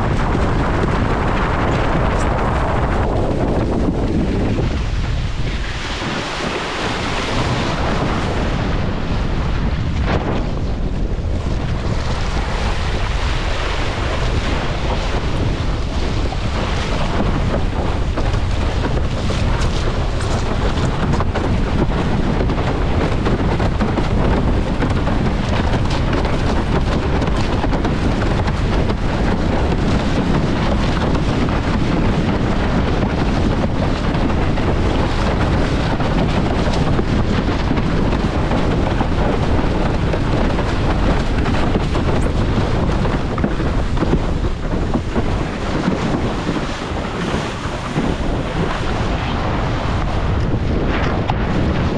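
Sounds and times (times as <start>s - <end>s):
wind rumbling on microphone: 0.0s - 51.9s
water rushing past board: 4.5s - 22.0s, 34.7s - 51.9s.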